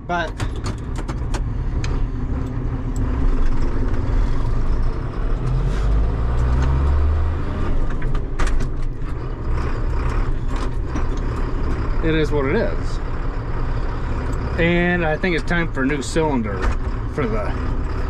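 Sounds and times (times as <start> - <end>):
diesel tractor engine revving: 0.0 - 18.0.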